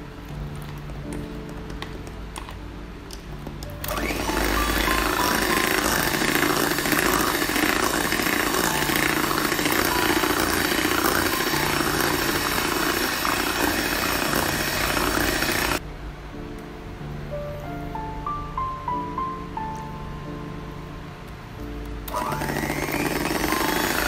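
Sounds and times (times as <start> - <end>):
electric hand mixer whisking: 3.8 - 15.8, 22.1 - 24.0.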